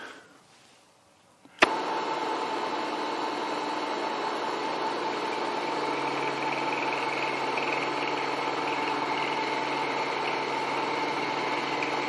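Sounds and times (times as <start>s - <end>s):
milling machine motor whining: 1.6s - 12.0s.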